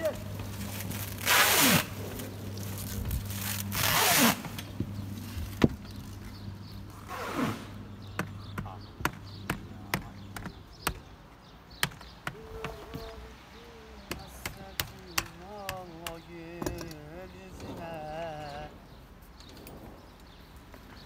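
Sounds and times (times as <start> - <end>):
plastic wrapping tearing: 0.2 - 4.7.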